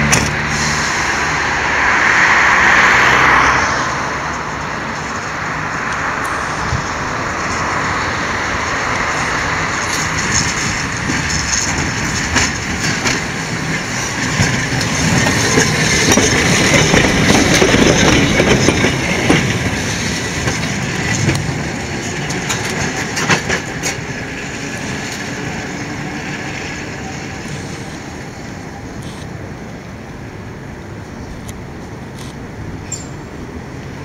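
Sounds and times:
tram running on rails: 0:00.0 - 0:34.0
wheels clacking over rail joints: 0:00.0 - 0:34.0.

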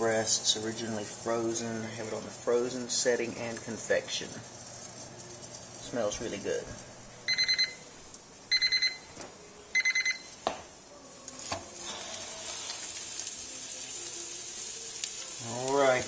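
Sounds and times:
faint sizzling: 0:00.0 - 0:16.0
oven quick high beeps: 0:07.3 - 0:07.9, 0:08.5 - 0:09.1, 0:09.8 - 0:10.3.

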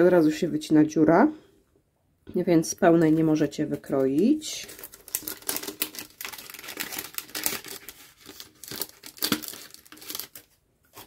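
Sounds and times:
packaging rustling and crackling: 0:03.8 - 0:11.0.

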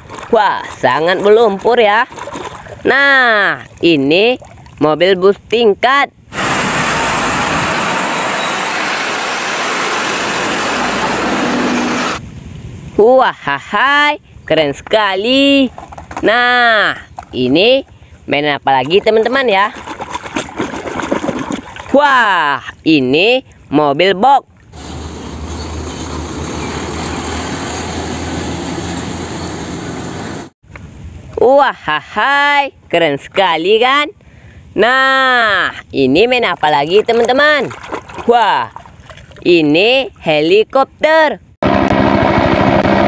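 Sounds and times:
truck engine and tyre noise: 0:06.2 - 0:12.7, 0:24.6 - 0:31.2, 0:41.6 - 0:43.0
buses driving past: 0:06.3 - 0:12.2, 0:24.8 - 0:30.6.

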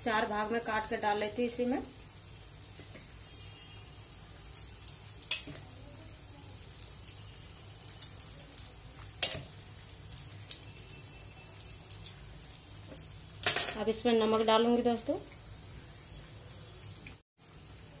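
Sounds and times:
food sizzling in oil: 0:00.0 - 0:18.0.

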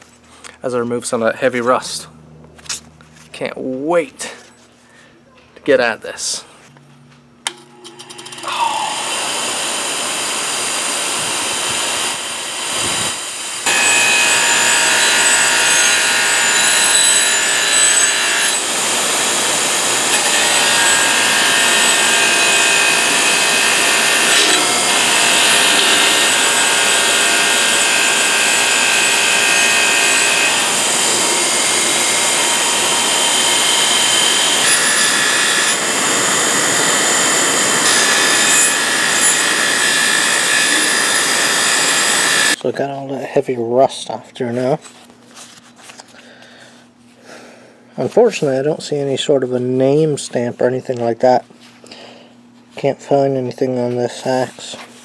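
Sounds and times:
grinder motor whine: 0:07.5 - 0:42.6.

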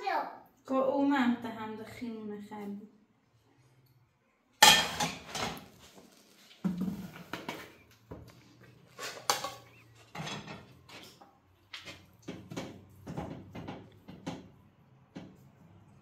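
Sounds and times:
pots and dishes clattering: 0:04.6 - 0:05.7, 0:08.9 - 0:14.4.

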